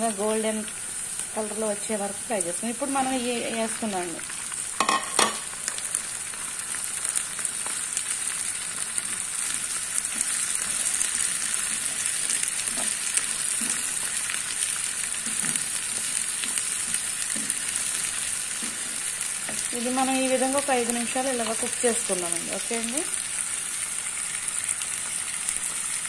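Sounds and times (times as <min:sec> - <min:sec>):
vegetables sizzling in hot oil: 0:00.0 - 0:26.0
wooden spatula scraping: 0:09.0 - 0:14.4, 0:15.2 - 0:19.9.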